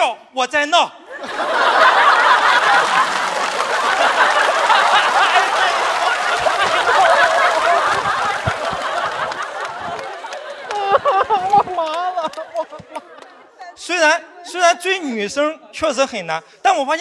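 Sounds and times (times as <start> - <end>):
studio audience laughing: 1.1 - 13.6.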